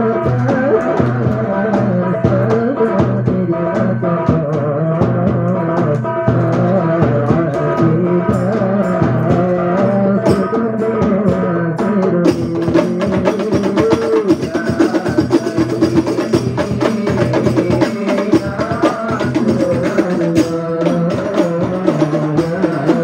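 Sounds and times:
frame drums playing: 0.0 - 23.0
person singing: 0.0 - 23.0.

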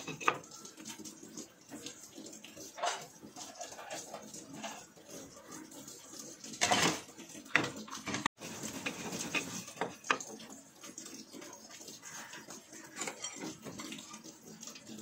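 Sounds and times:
kitchenware clattering: 0.0 - 0.7, 2.6 - 5.0, 6.6 - 10.4, 12.8 - 14.4.

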